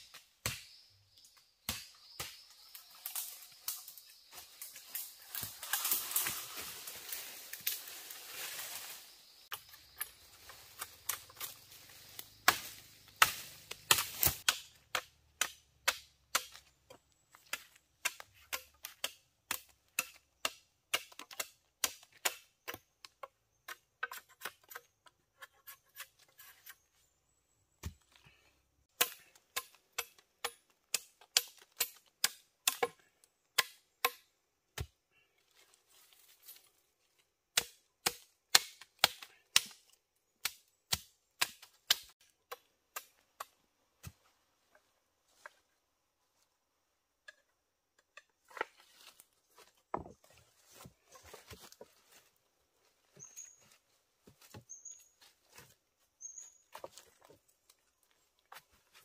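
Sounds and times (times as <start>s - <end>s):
knife chopping wooden sticks: 12.4s - 16.7s, 17.4s - 24.8s, 37.6s - 39.8s, 40.4s - 44.2s.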